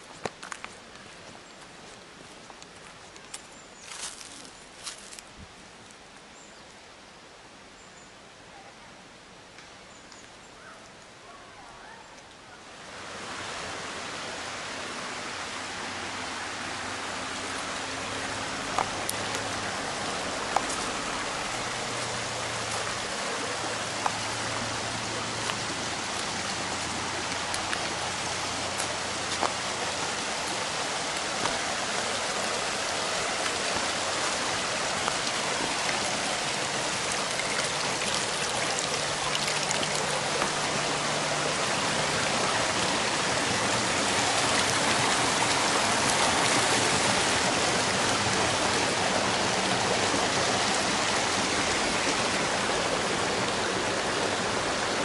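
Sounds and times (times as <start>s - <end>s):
stream babbling over rocks: 12.6s - 55.0s.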